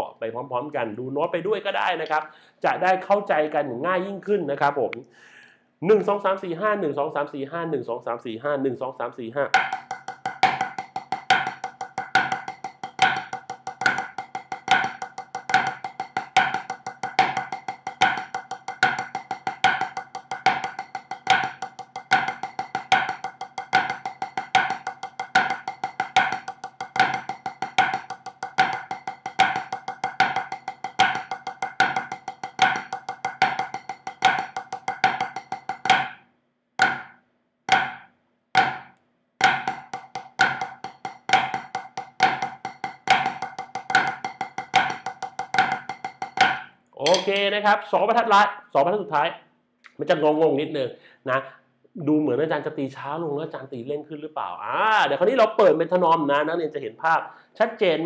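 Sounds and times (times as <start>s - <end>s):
drumsticks on practice pad: 9.5s - 36.2s, 39.4s - 47.5s.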